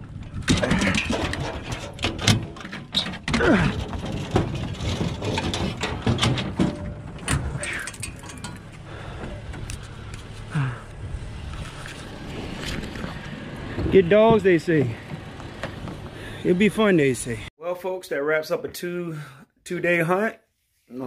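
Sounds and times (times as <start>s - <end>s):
metal crate door clanking: 0.4s - 8.7s.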